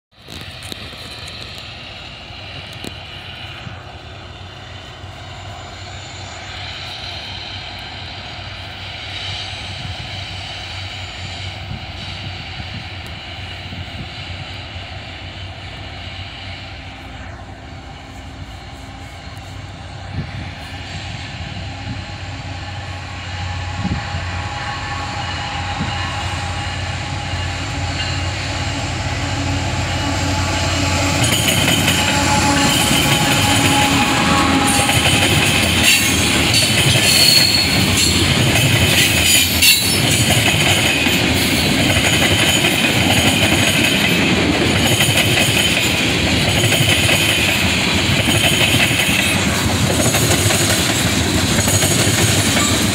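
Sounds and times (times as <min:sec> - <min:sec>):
diesel locomotive engine drone: 0:00.1 - 0:52.9.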